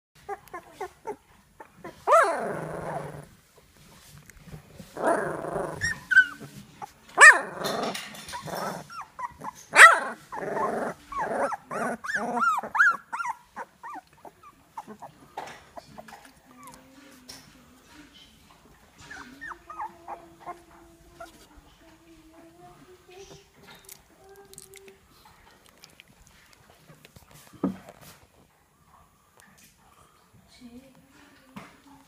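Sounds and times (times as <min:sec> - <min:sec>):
puppies growling and yipping: 0:00.2 - 0:03.4, 0:04.4 - 0:16.8, 0:19.0 - 0:21.5
puppy sharp yelps: 0:02.1 - 0:02.3, 0:09.2 - 0:10.2.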